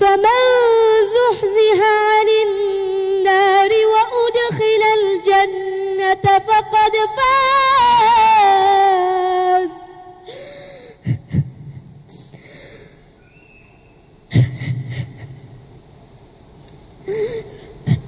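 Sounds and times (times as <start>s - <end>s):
child chanting: 0.0s - 10.0s.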